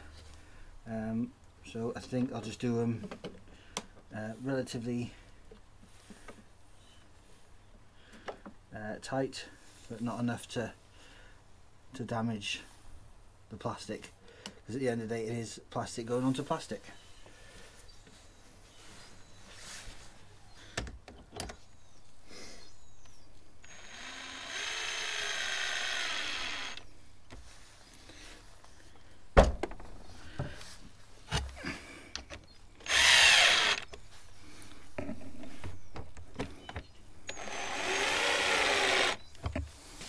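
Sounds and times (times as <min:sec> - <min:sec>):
cordless drill driving screws: 0:23.6 - 0:26.9, 0:32.8 - 0:33.9, 0:37.3 - 0:39.2.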